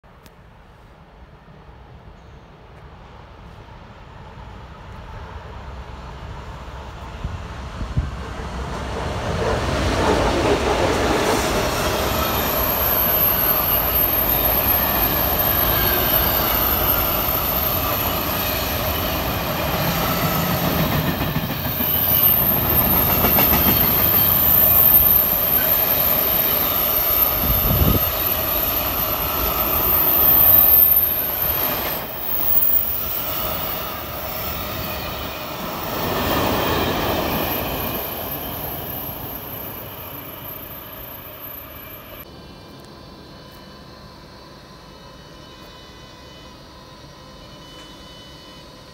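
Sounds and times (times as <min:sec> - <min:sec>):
freight train wheels rumbling: 0:01.6 - 0:42.3
high-pitched wheel squeal: 0:11.8 - 0:20.3, 0:21.6 - 0:42.2.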